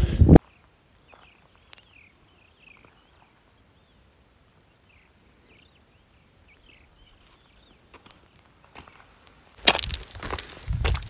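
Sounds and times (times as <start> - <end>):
small bird chirping: 0.4 - 9.0.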